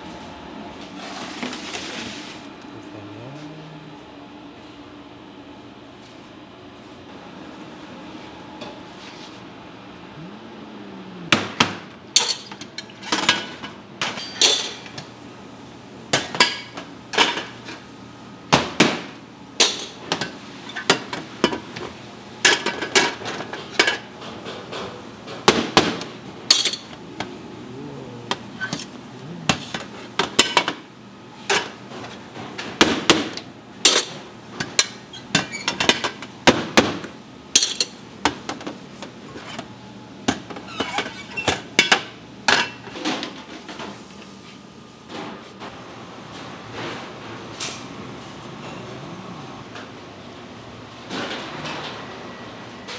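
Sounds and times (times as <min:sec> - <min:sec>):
steady low hum: 0:02.4 - 0:35.0.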